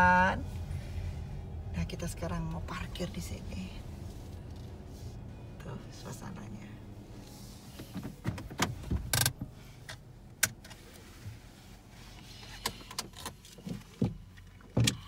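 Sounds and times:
car cabin hum: 0.0s - 15.0s
sharp clicks and knocks: 7.8s - 10.8s.

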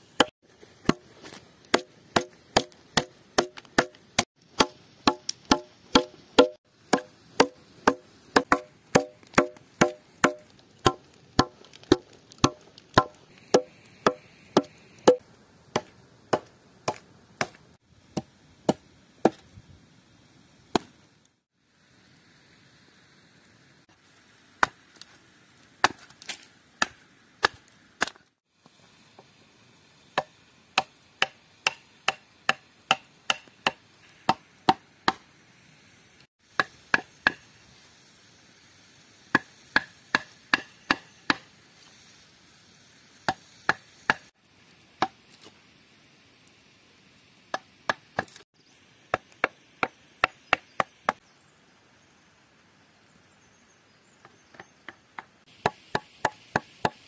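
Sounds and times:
hatchet blows on wood: 0.2s - 15.2s.

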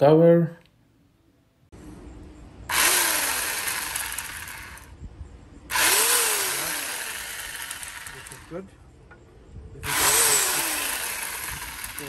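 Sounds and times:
electric chainsaw whirring: 2.7s - 5.0s, 5.7s - 8.6s, 9.8s - 12.0s.

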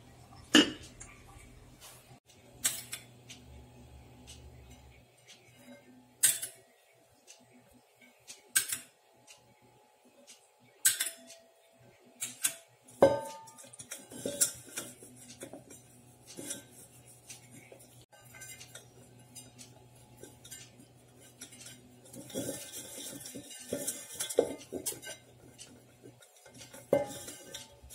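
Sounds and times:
steel vessel clinking and knocking: 13.0s - 15.8s, 20.2s - 27.9s.

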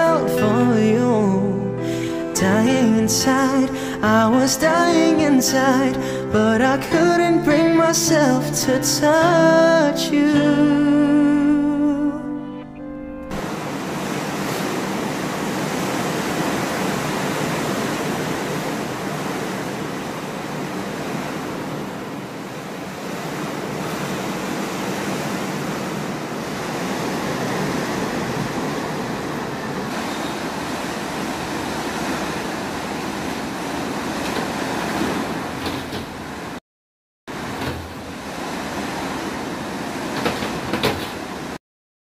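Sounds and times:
song ending: 0.0s - 13.5s.

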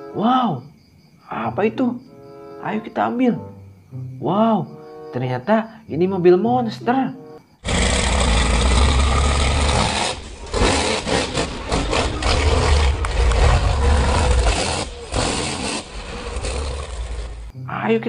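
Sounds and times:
monster truck engine rumble: 7.6s - 17.6s.

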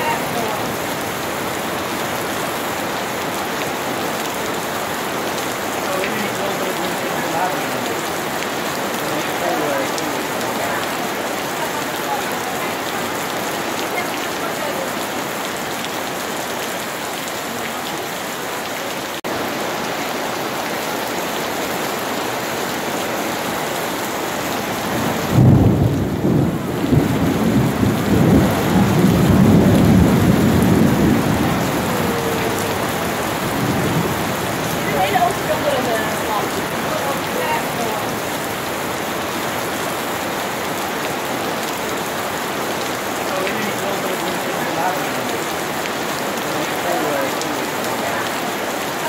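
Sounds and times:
rain on wet paving and water: 0.0s - 49.0s
rolling thunder: 24.7s - 35.6s.

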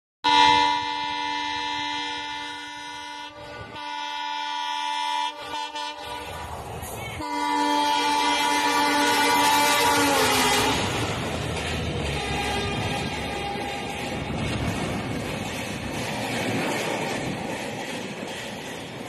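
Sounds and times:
locomotive air horn blasts: 0.2s - 6.5s, 7.2s - 11.3s, 11.9s - 14.5s
train rushing past: 5.4s - 19.0s.

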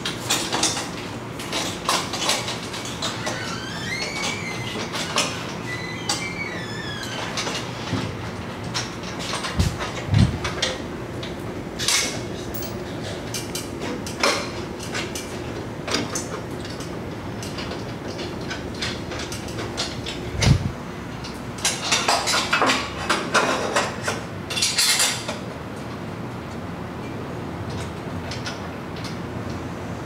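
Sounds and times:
metal parts clinking and knocking: 11.8s - 16.8s.

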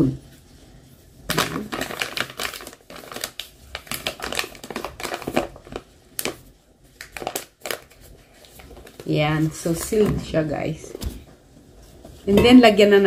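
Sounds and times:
paper bag crinkling: 1.3s - 10.3s.

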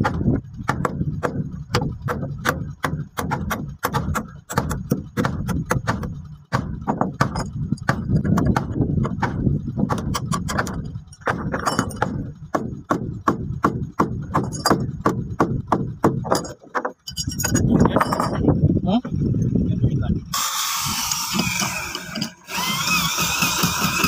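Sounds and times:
hammer striking chisel into wood: 0.0s - 17.6s.

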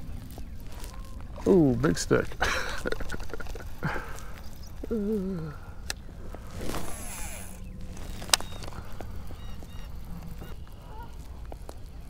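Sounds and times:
geese honking: 6.7s - 11.8s.

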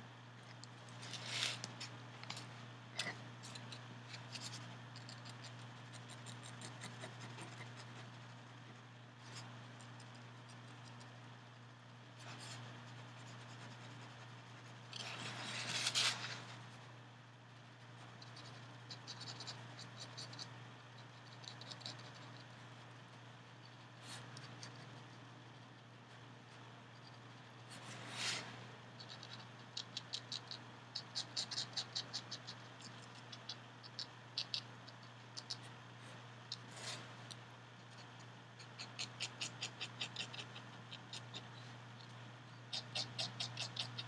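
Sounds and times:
pen scratching on paper: 3.5s - 8.3s.

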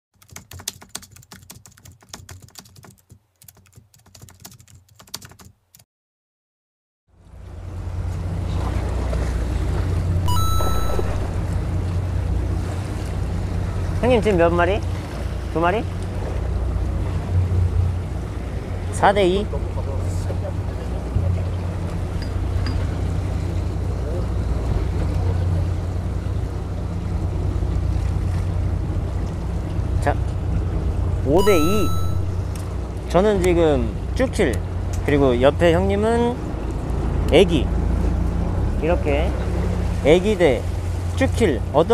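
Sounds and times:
computer keyboard typing: 0.2s - 5.8s
wind: 7.1s - 41.9s
boat engine humming: 7.3s - 33.2s
water noise: 7.8s - 13.9s.

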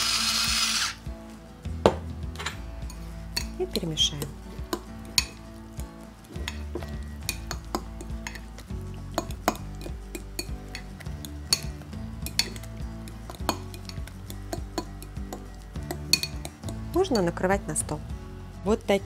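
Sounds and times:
spoon stirring thick sauce: 2.8s - 17.4s
spoon clinking against glass: 9.2s - 17.3s.

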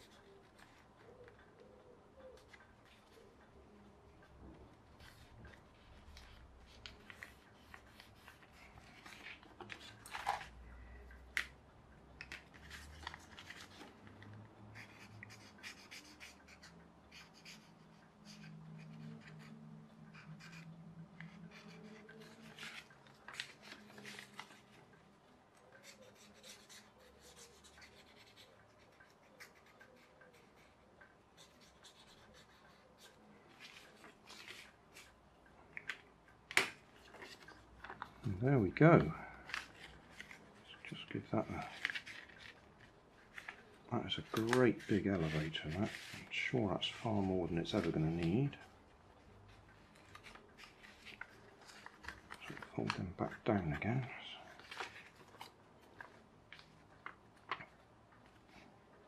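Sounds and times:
paper rustling and crinkling: 5.0s - 10.6s, 12.2s - 14.3s, 21.2s - 25.0s, 32.7s - 35.1s, 35.8s - 48.7s, 49.8s - 58.6s
marker pen scratching paper: 14.8s - 20.7s, 25.8s - 33.2s.

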